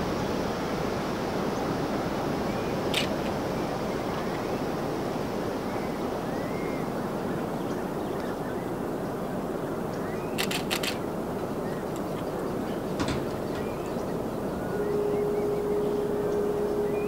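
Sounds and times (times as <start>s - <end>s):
ocean surf washing onto beach: 0.0s - 17.0s
sharp clicks: 10.4s - 11.0s
faint high chirps: 14.6s - 17.0s.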